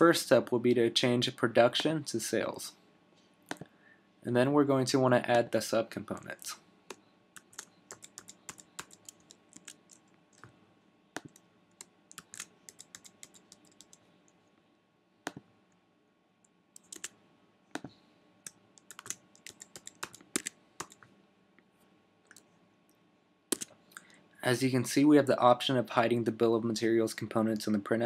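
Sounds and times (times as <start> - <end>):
faint keyboard typing: 6.9 - 10.6, 11.2 - 14.6, 16.4 - 21.2, 22.2 - 22.5, 23.5 - 24.2.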